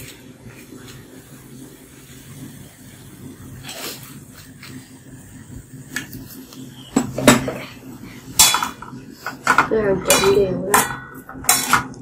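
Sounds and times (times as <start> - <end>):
food frying in a wok: 0.0 - 9.5
gas burner low hum: 0.0 - 12.0.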